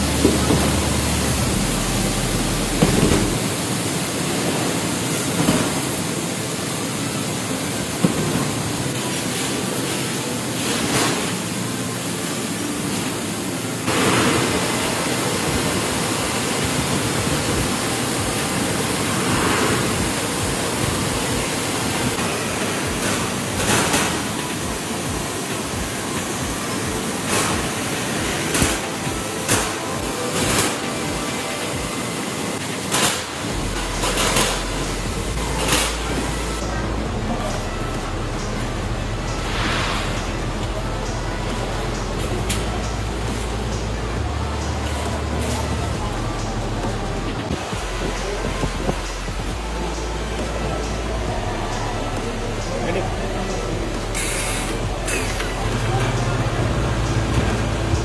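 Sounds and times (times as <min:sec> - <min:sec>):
water jets spraying hard: 0:00.0 - 0:36.6, 0:52.6 - 0:58.0.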